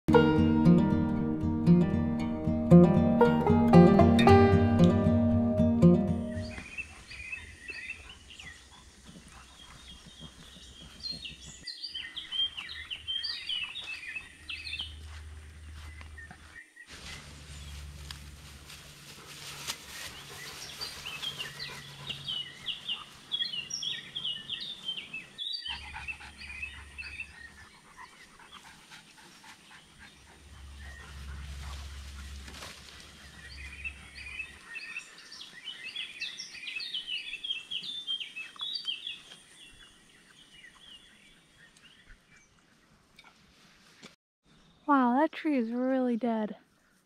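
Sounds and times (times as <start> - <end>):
small birds chirping: 6.2 - 17.9, 19.5 - 43.3
low steady rumble: 30.3 - 34.5.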